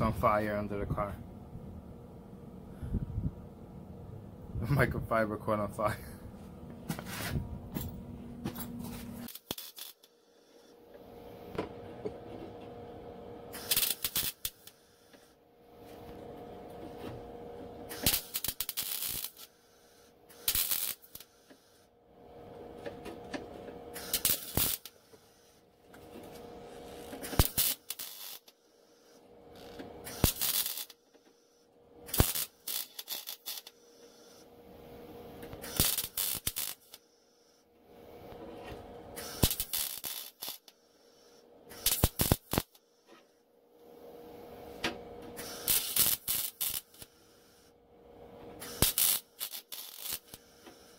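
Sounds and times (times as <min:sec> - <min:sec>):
steady low hum: 0:00.0 - 0:50.9
welding arc crackling: 0:08.9 - 0:10.1, 0:13.5 - 0:15.3, 0:17.9 - 0:21.8, 0:24.0 - 0:25.5, 0:26.7 - 0:31.0, 0:32.0 - 0:34.4, 0:35.5 - 0:37.0, 0:39.1 - 0:40.8, 0:41.7 - 0:42.8, 0:45.4 - 0:47.7, 0:48.6 - 0:50.9.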